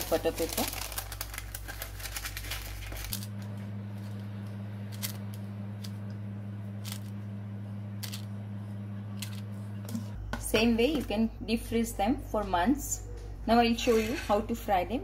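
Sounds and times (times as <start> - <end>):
paper rustling: 0.0 - 3.4
steady low hum: 0.0 - 15.0.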